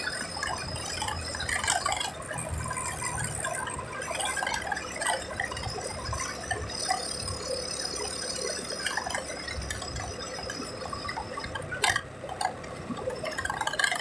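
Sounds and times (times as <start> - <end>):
road and engine rumble: 0.0 - 14.0.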